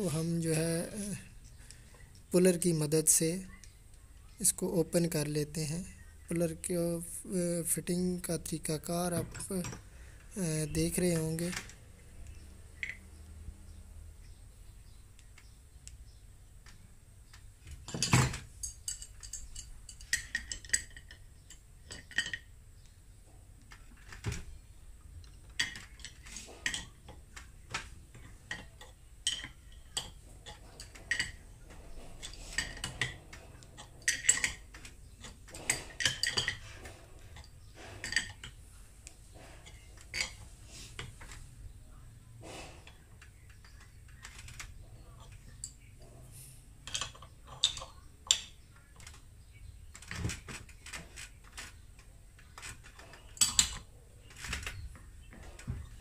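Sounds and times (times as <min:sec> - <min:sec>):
metal parts clinking and knocking: 0:08.4 - 0:09.9, 0:17.6 - 0:22.5, 0:25.2 - 0:38.6, 0:39.4 - 0:40.4, 0:46.8 - 0:49.3, 0:49.9 - 0:55.8.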